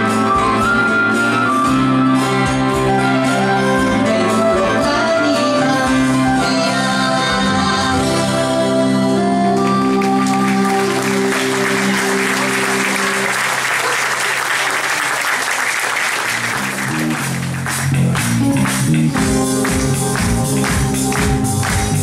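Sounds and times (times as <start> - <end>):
live band music: 0.0 - 22.0
audience applauding: 9.6 - 22.0.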